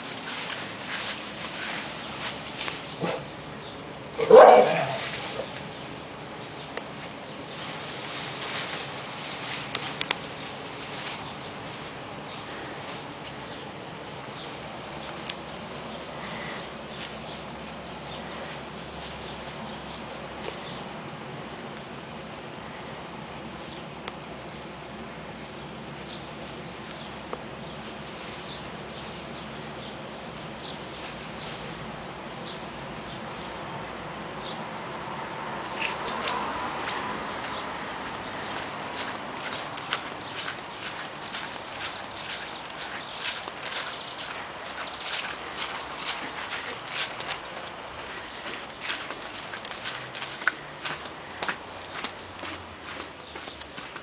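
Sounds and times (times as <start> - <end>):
steady high hiss: 0.0 - 54.0
dog barking: 3.0 - 3.3, 4.2 - 5.0
faint rustling: 6.8 - 13.6.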